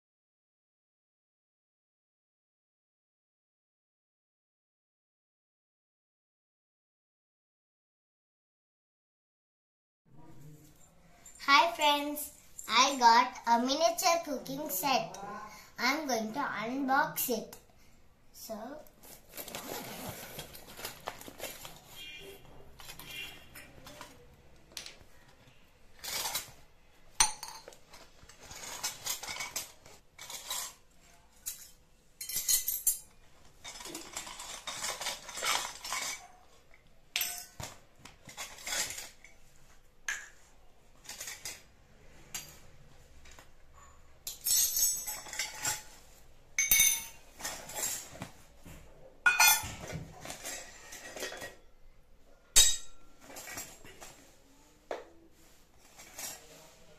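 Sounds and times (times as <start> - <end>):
metal toy utensils clinking: 44.3 - 45.9.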